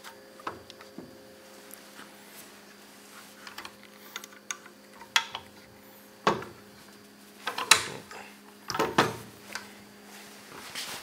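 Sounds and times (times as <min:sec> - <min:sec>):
faint steady hum: 0:00.0 - 0:11.0
metal clicks and knocks: 0:07.5 - 0:08.0.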